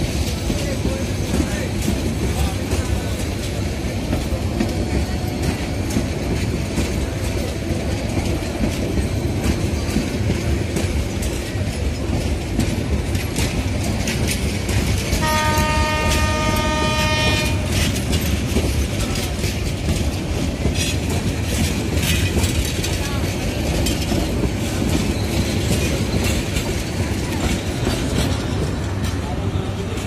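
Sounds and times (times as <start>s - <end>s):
train coaches rumbling past: 0.0s - 30.0s
wheels clicking over rail joints: 0.0s - 30.0s
train horn blast: 15.1s - 17.9s.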